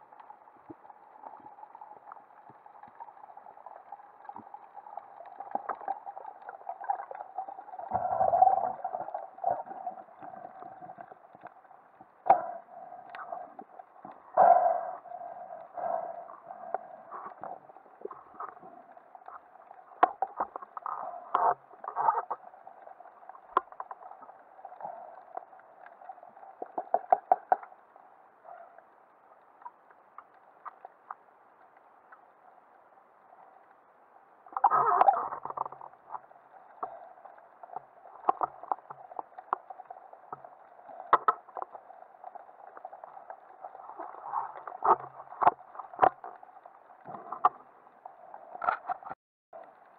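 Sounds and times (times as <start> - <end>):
muffled underwater water sound: 0.0 - 49.9.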